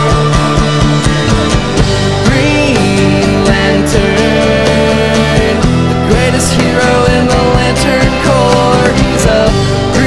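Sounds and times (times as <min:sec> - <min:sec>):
instrumental rock music: 0:00.0 - 0:10.0
steady drum beat: 0:00.0 - 0:10.0.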